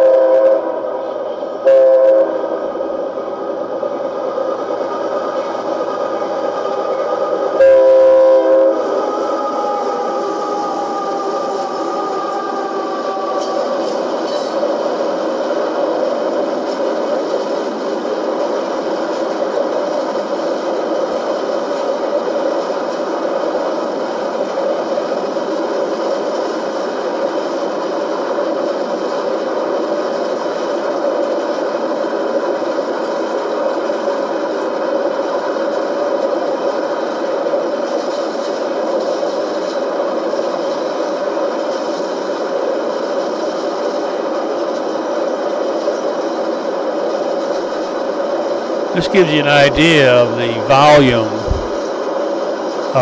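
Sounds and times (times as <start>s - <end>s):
train wheels clattering on rails: 13.2s - 48.1s.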